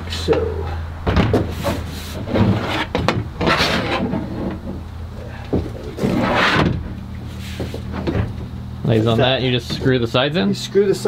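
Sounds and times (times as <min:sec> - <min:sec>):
shelf scraping on plastic panels: 0:01.0 - 0:04.9, 0:05.5 - 0:08.5.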